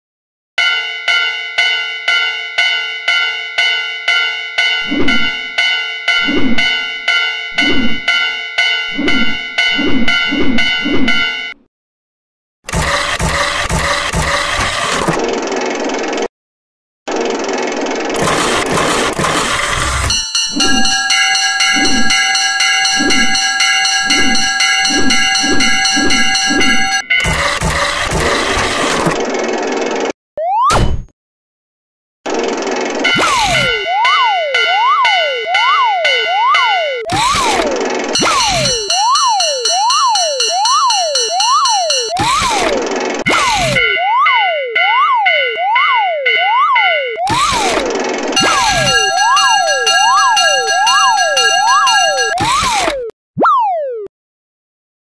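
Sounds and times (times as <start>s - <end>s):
railroad crossing alarm bell: 0.6s - 11.6s, 20.0s - 28.4s, 33.0s - 37.1s, 38.2s - 42.2s, 43.6s - 47.3s, 48.4s - 52.4s.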